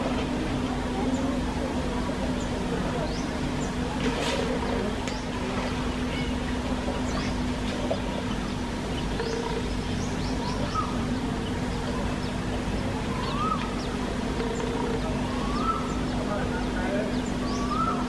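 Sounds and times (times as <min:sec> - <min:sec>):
low rumble and hum: 0:00.0 - 0:18.0
birds whistling and chirping: 0:08.3 - 0:18.0.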